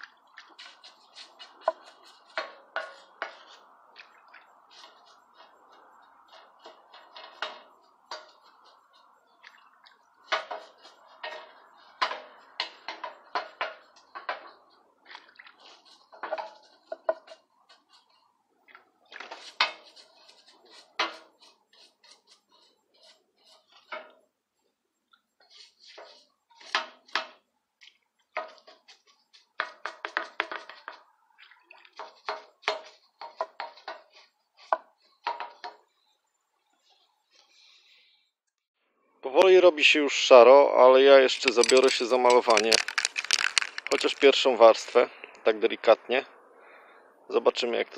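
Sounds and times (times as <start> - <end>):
metallic scraping and clinking: 41.0 - 45.0.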